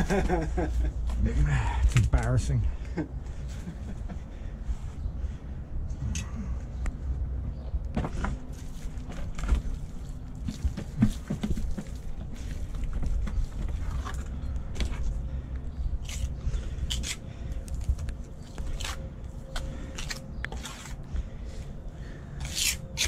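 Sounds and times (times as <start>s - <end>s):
trowel scraping mortar on stone: 19.9s - 21.0s, 22.4s - 23.0s.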